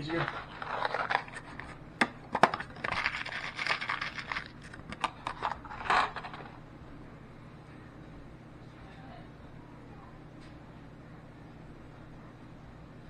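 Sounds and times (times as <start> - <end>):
plastic bag crinkling: 0.0 - 6.5.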